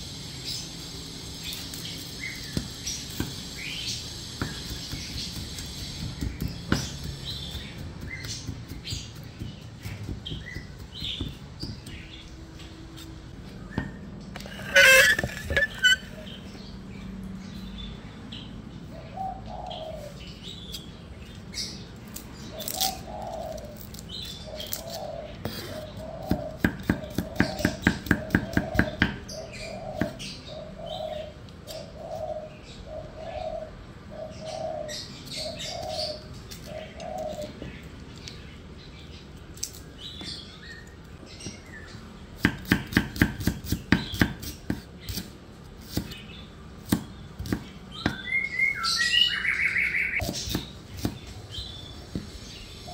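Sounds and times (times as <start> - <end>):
cleaver chopping on wooden board: 4.4 - 12.1, 26.2 - 29.3, 42.4 - 45.3, 46.8 - 48.3, 50.2 - 51.3
bird cooing: 32.0 - 37.6
bird chirps: 47.4 - 52.9.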